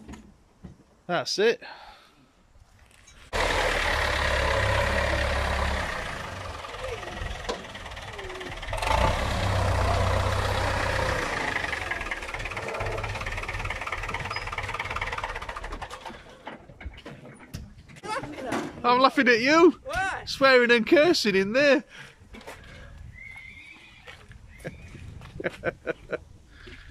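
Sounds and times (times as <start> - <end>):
tractor diesel engine running: 3.3 - 17.0.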